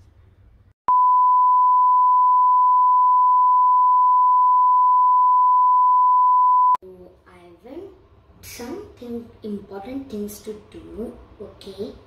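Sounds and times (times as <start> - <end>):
steady test tone beep: 0.9 - 6.8.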